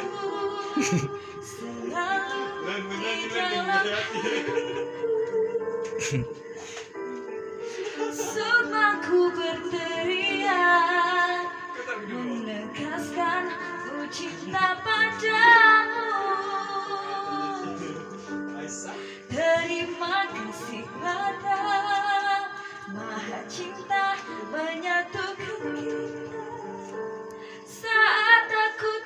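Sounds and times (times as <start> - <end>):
woman singing with vibrato: 0.0 - 6.4, 8.0 - 17.9, 19.3 - 26.9
instrumental accompaniment: 0.0 - 29.0.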